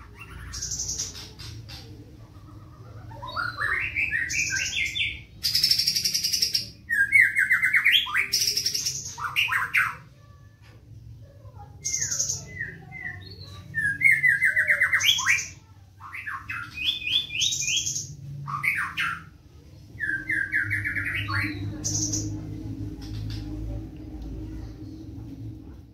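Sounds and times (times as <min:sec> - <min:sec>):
songbird singing with buzzy rattles: 0:00.1 - 0:02.0, 0:20.0 - 0:25.4.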